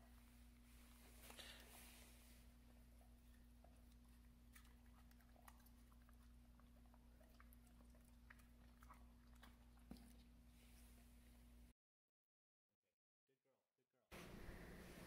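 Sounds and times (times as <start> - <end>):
low electrical hum: 0.0 - 11.7
dog chewing and licking lips: 2.6 - 11.0.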